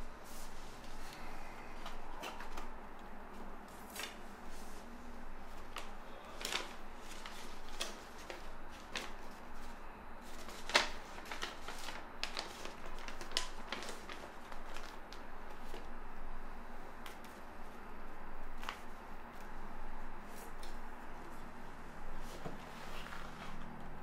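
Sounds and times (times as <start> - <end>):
paper rustling: 0.0 - 15.9, 18.5 - 19.6, 22.1 - 23.8.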